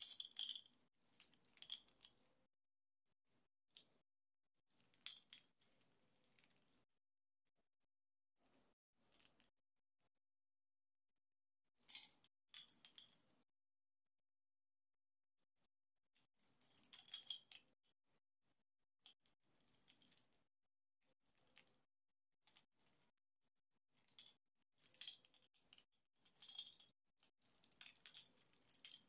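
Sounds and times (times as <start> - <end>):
metal multi-tool clinking and rattling: 0.0 - 2.4, 4.9 - 6.6, 11.8 - 13.2, 16.6 - 17.6, 24.0 - 26.9, 27.5 - 29.0.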